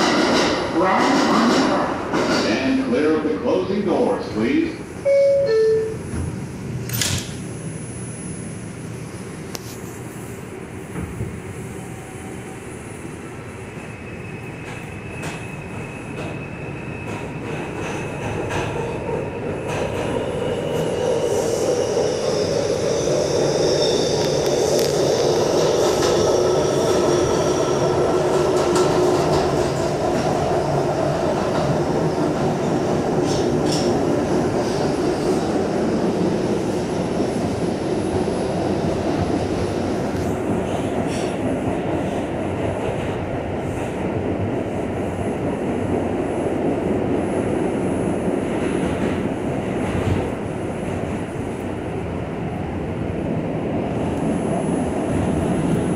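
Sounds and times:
train wheels on track: 0.0s - 55.9s
train doors shutting with a thud: 5.1s - 7.6s, 10.8s - 12.5s, 33.2s - 34.1s, 40.0s - 42.2s.

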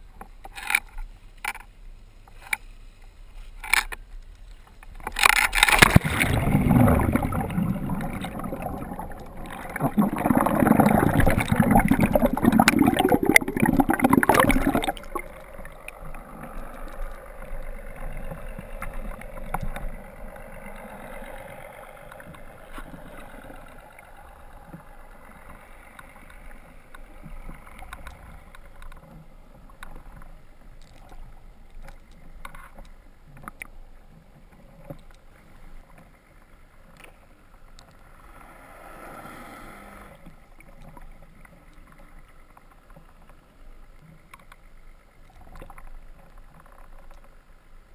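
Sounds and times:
small underwater clicks: 0.0s - 38.5s, 40.1s - 47.9s
underwater bubbles and churning water: 0.0s - 47.9s
faint underwater hiss: 5.8s - 47.9s.

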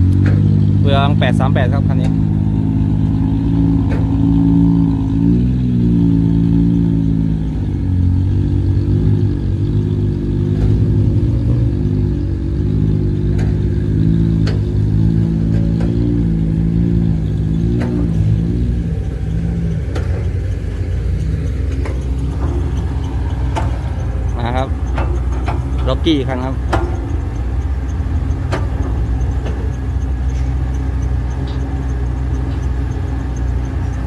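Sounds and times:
diesel truck engine under load: 0.0s - 34.0s
light rattles and knocks: 17.6s - 34.0s.

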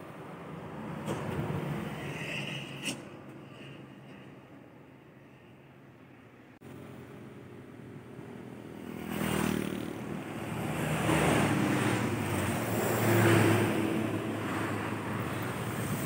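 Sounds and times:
motor scooters passing: 8.7s - 16.0s.

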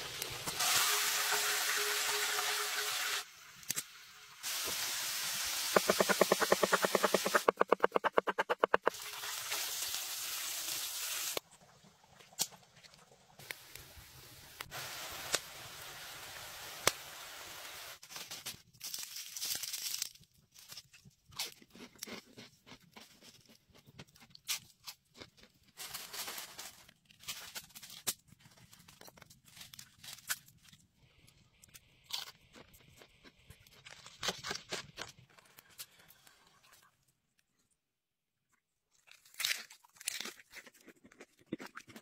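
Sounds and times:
hot oil sizzling: 0.0s - 18.0s
fried chips crunching: 18.8s - 26.3s, 38.9s - 42.0s.

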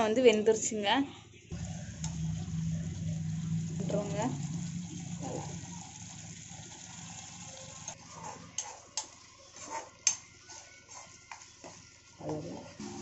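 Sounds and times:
spoon stirring and scraping in pan: 7.8s - 13.0s.

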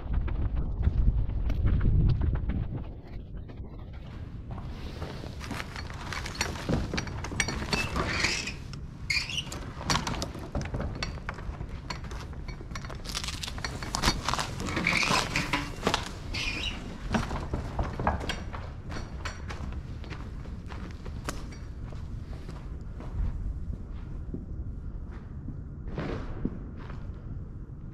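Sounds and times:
footsteps crunching on debris: 12.1s - 23.6s.

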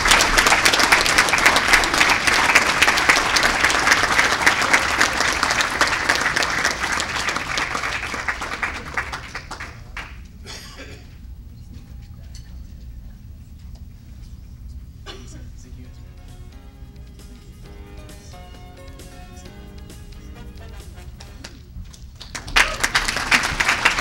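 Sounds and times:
crowd applauding: 0.0s - 10.4s, 18.3s - 24.0s.

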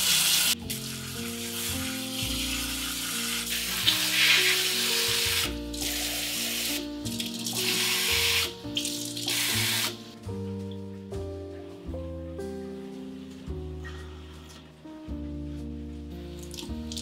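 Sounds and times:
water running from a tap: 0.0s - 10.0s, 16.4s - 17.0s
background music: 0.0s - 17.0s.

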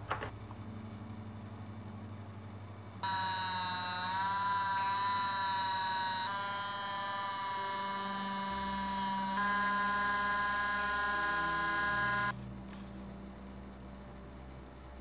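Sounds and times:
rotary tool high-pitched whine: 0.7s - 12.4s.

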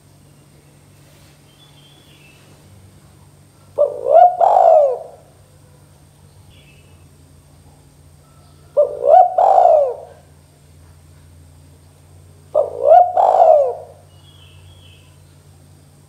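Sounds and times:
dove cooing: 3.3s - 6.0s, 8.0s - 10.4s, 12.2s - 15.2s.

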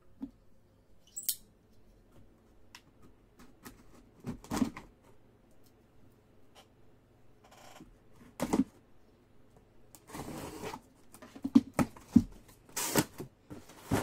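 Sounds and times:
packing tape tearing rustles: 12.7s - 14.0s.

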